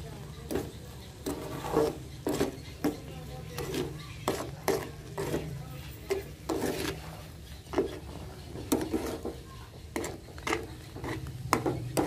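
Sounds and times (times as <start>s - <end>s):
spoon scraping a steel pan: 0.4s - 12.0s.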